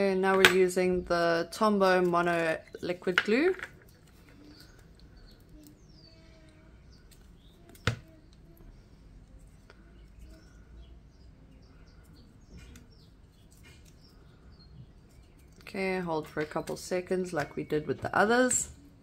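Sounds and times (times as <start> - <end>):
faint bird chirps: 4.0 - 15.7.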